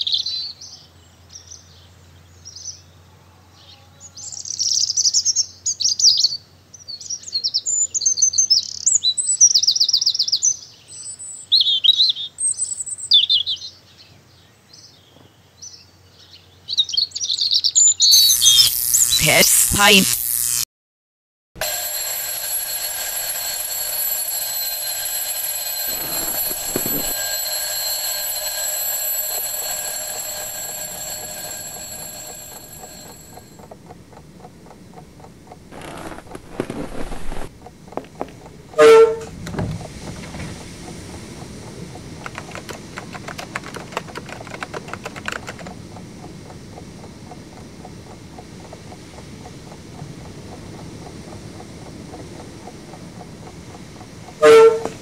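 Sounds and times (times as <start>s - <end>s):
alarm clock ringing: 18.1s - 20.5s, 21.6s - 33.6s
rapid clicks: 21.6s - 38.5s, 42.1s - 45.8s.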